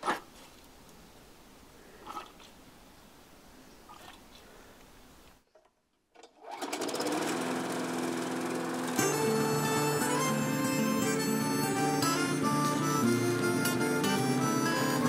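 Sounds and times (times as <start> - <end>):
lawn mower engine running: 6.4 - 15.0.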